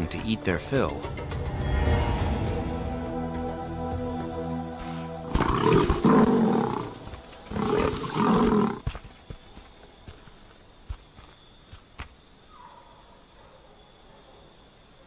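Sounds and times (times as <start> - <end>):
background music with held notes: 0.0 - 7.8
lioness growling: 5.3 - 8.9.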